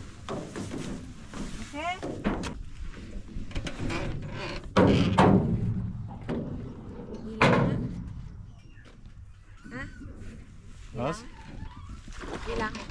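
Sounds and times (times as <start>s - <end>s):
hollow thuds in wooden boat: 0.2s - 8.4s.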